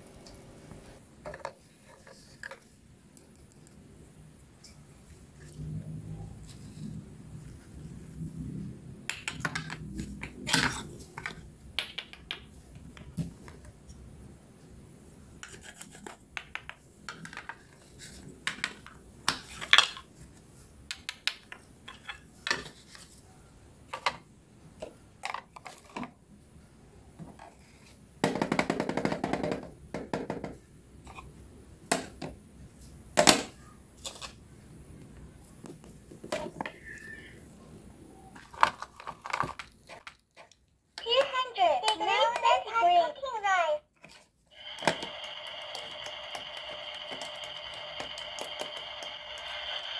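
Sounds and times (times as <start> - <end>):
toy pieces clicking and knocking: 44.6 - 49.9.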